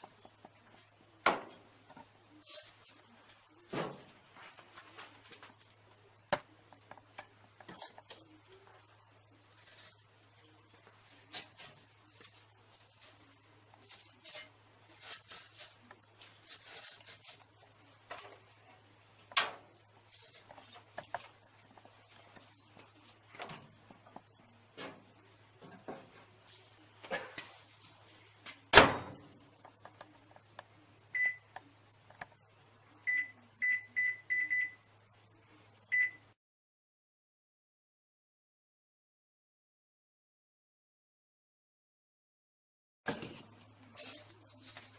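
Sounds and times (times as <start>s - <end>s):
microwave keypad beeps: 31.2s - 31.5s, 33.1s - 34.9s, 35.9s - 36.3s.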